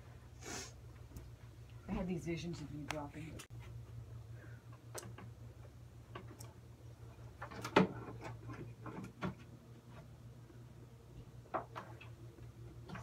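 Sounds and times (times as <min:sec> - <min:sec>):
steady low hum: 0:00.0 - 0:13.0
knocks and clicks of handling objects: 0:07.3 - 0:10.1, 0:11.4 - 0:13.0.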